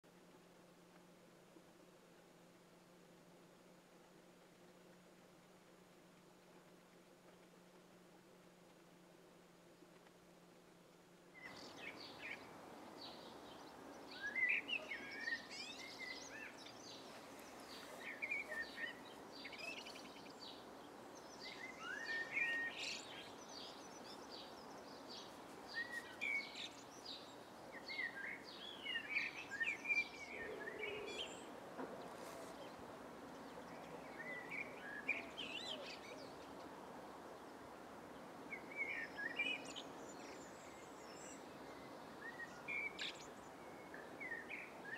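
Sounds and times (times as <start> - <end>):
steady background hiss: 0.0 - 44.9
songbirds singing and twittering: 11.3 - 44.9.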